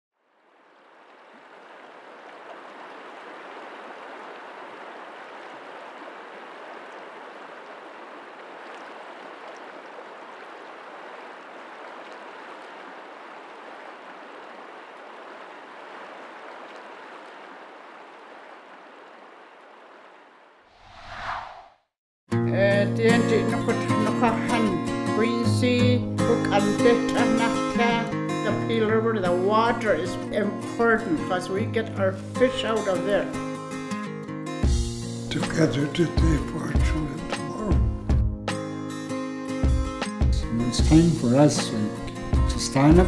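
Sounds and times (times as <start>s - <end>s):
water rushing over rocks: 0.5s - 20.3s.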